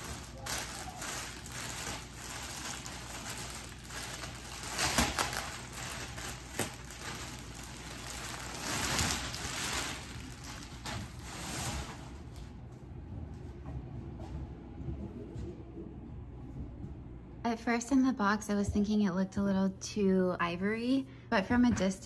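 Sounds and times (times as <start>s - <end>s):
plastic bag crinkling: 0.0s - 12.4s.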